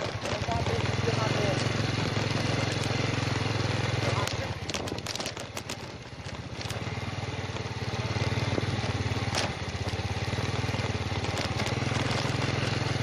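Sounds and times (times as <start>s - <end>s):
motorcycle engine running: 0.0s - 13.0s
stones clicking: 1.6s - 3.0s, 4.1s - 7.7s, 10.6s - 12.9s.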